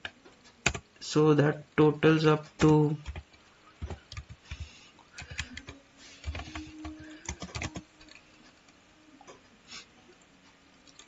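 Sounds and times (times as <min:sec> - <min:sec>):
typing on computer keyboard: 0:00.6 - 0:00.8, 0:02.6 - 0:08.2.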